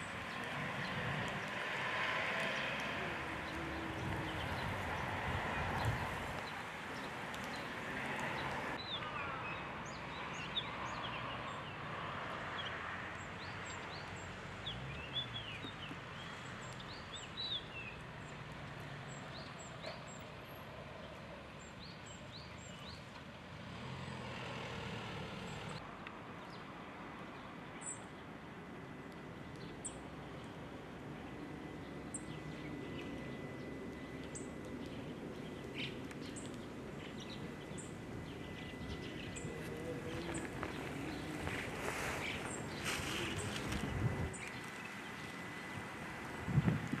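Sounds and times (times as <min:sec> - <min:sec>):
birds chirping: 0:00.0 - 0:11.8, 0:29.5 - 0:46.8.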